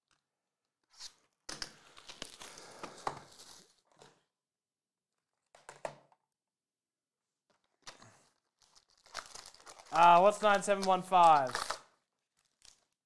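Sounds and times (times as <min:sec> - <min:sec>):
plastic wrap crinkling and tearing: 0:01.7 - 0:03.8, 0:07.8 - 0:13.0.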